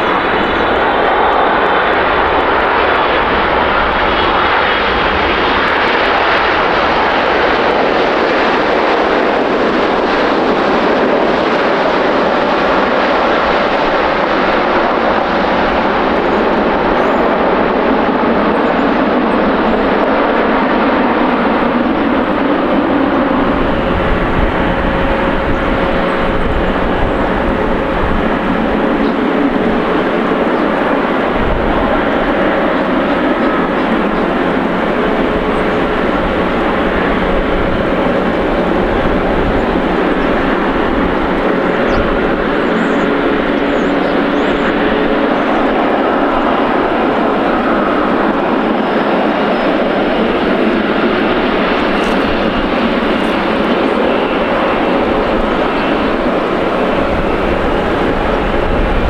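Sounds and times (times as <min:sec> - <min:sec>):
jet engines running: 0:00.0 - 0:59.0
high fan whine: 0:21.2 - 0:59.0.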